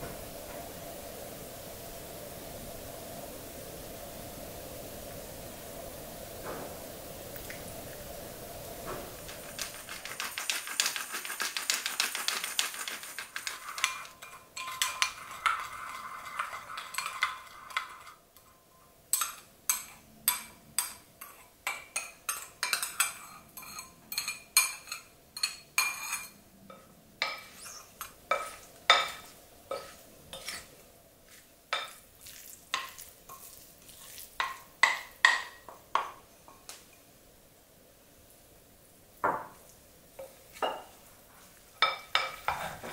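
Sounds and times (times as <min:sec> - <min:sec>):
spoon clinking in ceramic bowl: 0:09.3 - 0:26.4.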